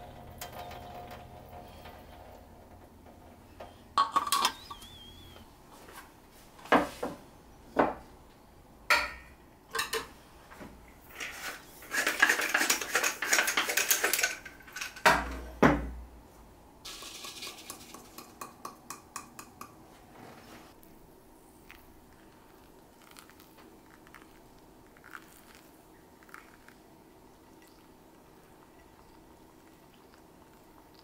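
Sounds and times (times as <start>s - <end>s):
dishes and cutlery clinking: 4.0s - 4.6s, 8.9s - 10.1s, 11.9s - 15.4s.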